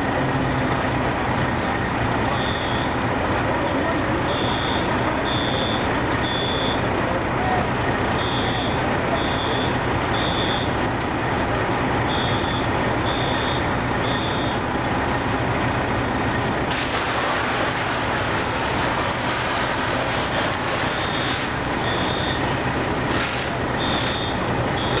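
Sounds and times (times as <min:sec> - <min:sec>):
fire truck engines running: 0:00.0 - 0:25.0
reversing alarm beeping: 0:02.3 - 0:03.0, 0:04.2 - 0:06.9, 0:08.2 - 0:10.8, 0:12.0 - 0:14.6, 0:20.9 - 0:22.6, 0:23.8 - 0:25.0.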